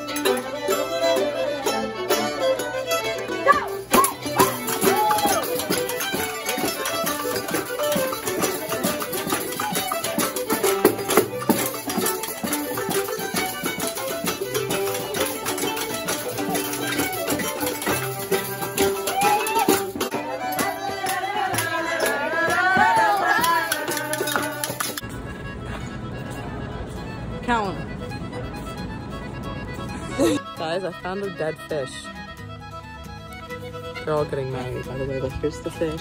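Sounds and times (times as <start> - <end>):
fiddles playing folk tune: 0.0 - 36.0
rattling shaker: 4.2 - 25.0.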